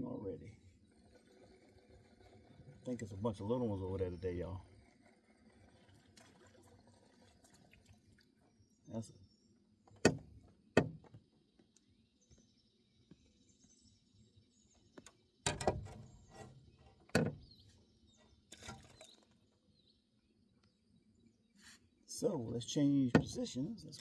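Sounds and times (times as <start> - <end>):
faint bird chirps: 6.6 - 10.0
knocks and thumps in boat: 9.9 - 11.3, 15.0 - 17.8, 23.1 - 23.8.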